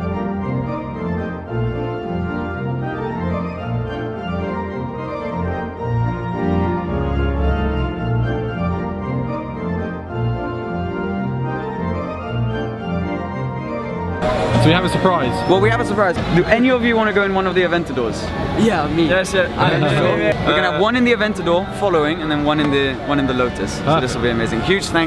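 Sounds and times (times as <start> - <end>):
background music with chords and bass: 0.0 - 16.6.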